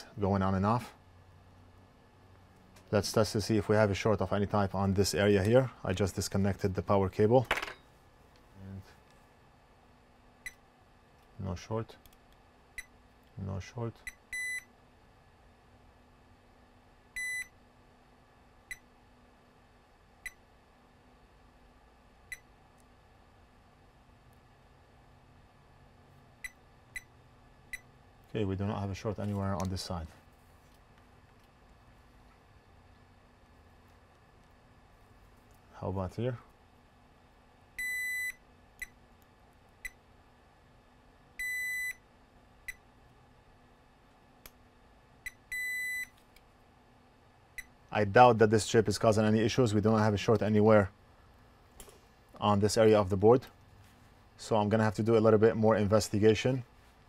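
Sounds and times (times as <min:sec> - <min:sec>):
multimeter continuity chirps: 0:10.4 - 0:10.7, 0:12.7 - 0:13.1, 0:13.9 - 0:14.8, 0:17.1 - 0:17.6, 0:18.6 - 0:19.0, 0:20.2 - 0:20.5, 0:22.2 - 0:22.6, 0:26.4 - 0:28.1, 0:37.7 - 0:39.0, 0:39.8 - 0:40.1, 0:41.3 - 0:42.9, 0:45.2 - 0:46.2, 0:47.5 - 0:47.9
multimeter high beeps: 0:14.0 - 0:14.7, 0:17.2 - 0:17.6, 0:37.8 - 0:39.0, 0:41.4 - 0:42.0, 0:45.3 - 0:46.1.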